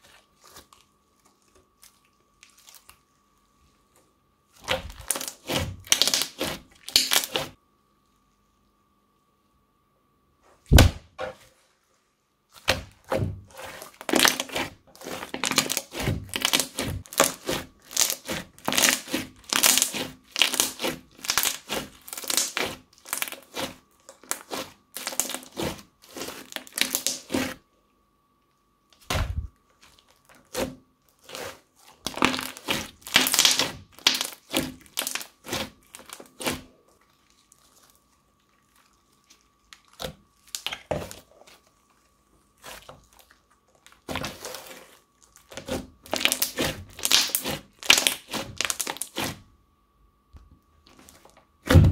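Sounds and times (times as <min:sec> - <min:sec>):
crunchy slime crackling: 0:00.0 - 0:03.6, 0:04.5 - 0:07.6, 0:12.5 - 0:27.6, 0:28.9 - 0:49.4
loud slime pop: 0:10.7 - 0:11.1.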